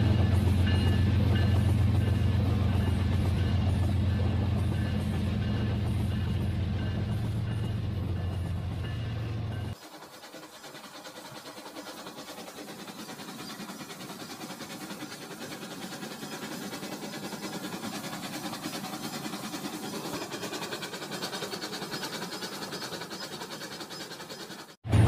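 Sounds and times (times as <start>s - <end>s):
wheels clicking on track: 0.0s - 25.0s
toy train motor whirring: 9.8s - 24.8s.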